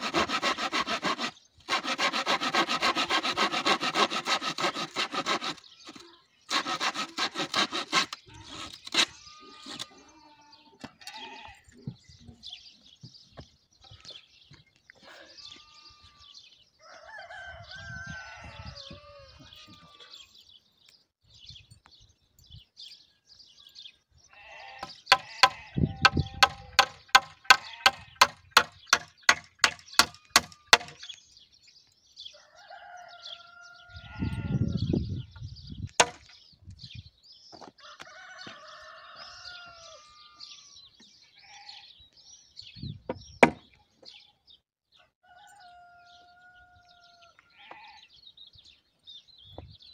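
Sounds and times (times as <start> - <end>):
farm animal calls: 5.3 - 12.8, 15.0 - 20.4, 23.6 - 28.6, 29.6 - 31.1, 32.3 - 35.0, 37.8 - 42.1, 45.0 - 48.8
hammer nailing wood: 25.1 - 31.0, 36.0 - 36.3, 43.4 - 43.6.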